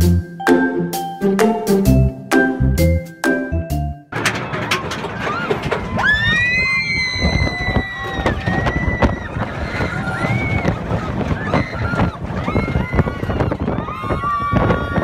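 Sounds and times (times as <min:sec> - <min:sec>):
riders screaming: 0:05.0 - 0:15.0
wind on microphone: 0:05.8 - 0:15.0.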